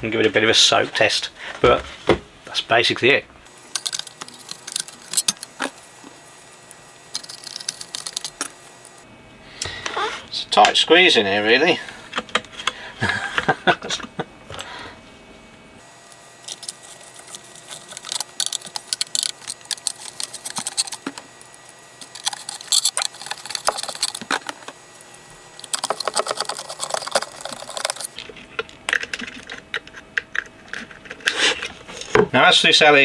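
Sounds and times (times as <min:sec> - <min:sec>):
clicks and small rattles: 0:03.6 - 0:05.8, 0:07.1 - 0:08.6, 0:16.4 - 0:24.8, 0:25.6 - 0:31.3.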